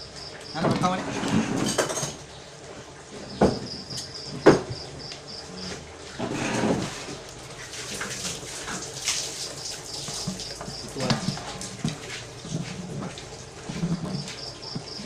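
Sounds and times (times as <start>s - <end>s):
tableware knocking on a table: 3.3s - 4.8s.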